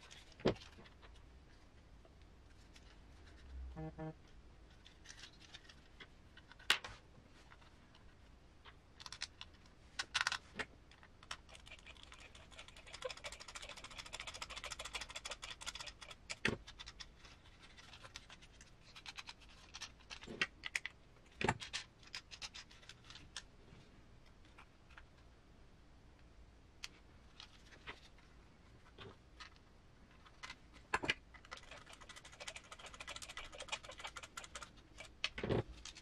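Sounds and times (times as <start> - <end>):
quick ticking and scratching: 11.2 - 20.4, 31.4 - 36.0.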